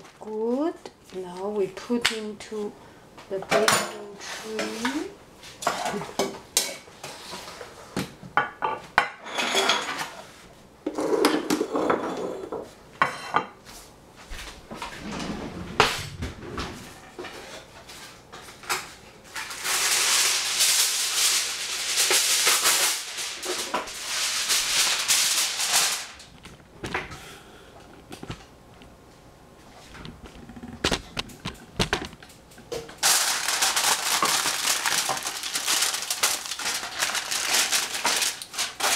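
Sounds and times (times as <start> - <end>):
aluminium foil crinkling: 18.7 - 26.6, 33.0 - 38.9
utensils clinking in metal sink: 32.9 - 38.9
loud steady rustling: 33.0 - 38.9.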